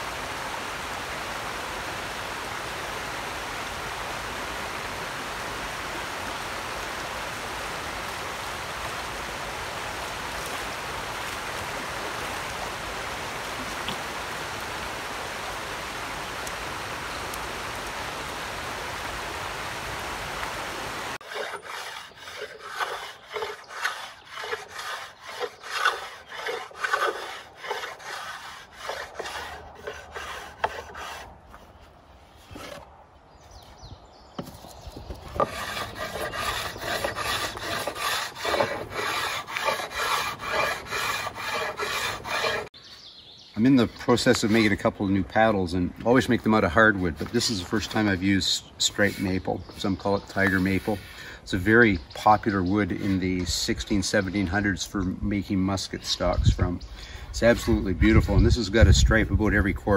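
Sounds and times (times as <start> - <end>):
creek running over rocks: 0.0 - 31.2, 35.3 - 42.8
blade shaving wood: 21.2 - 31.8, 35.2 - 42.8, 57.4 - 59.6.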